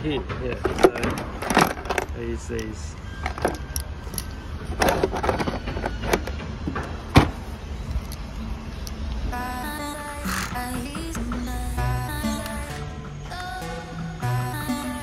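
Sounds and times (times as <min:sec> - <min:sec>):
hardware clicks and knocks: 0:00.2 - 0:07.4
background music: 0:08.2 - 0:15.0.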